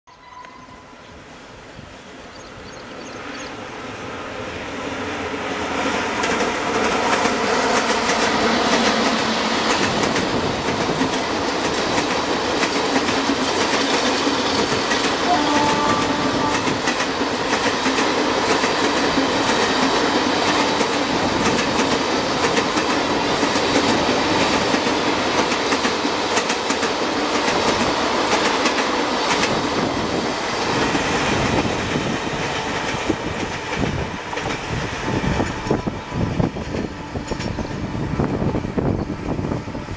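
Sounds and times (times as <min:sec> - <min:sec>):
train passing at speed: 0:00.1 - 0:39.9
wheels clacking over rail joints: 0:16.4 - 0:29.8.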